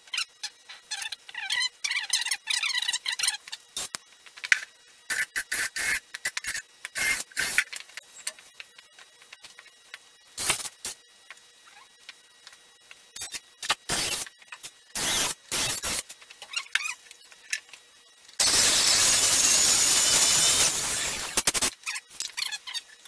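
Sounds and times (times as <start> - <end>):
electric drill boring into wood: 18.4 - 21.4.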